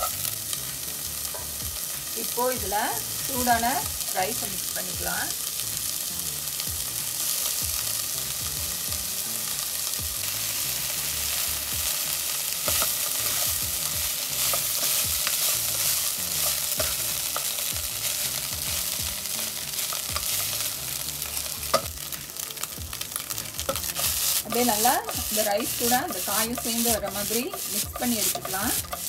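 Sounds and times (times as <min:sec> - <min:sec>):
food sizzling: 0:00.0 - 0:29.0
wooden spatula scraping pot: 0:23.7 - 0:29.0.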